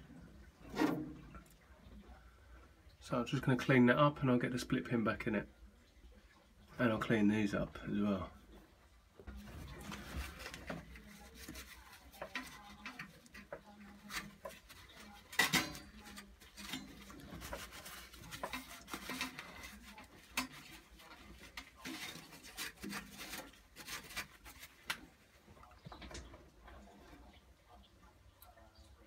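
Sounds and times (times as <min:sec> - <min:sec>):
paper towel rustling and rubbing: 0:09.4 - 0:15.4, 0:16.0 - 0:25.4.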